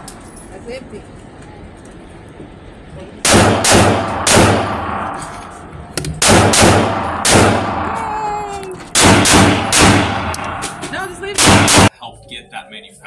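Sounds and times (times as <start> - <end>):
gunshots with ringing echo: 3.2 - 8.1, 8.9 - 11.9.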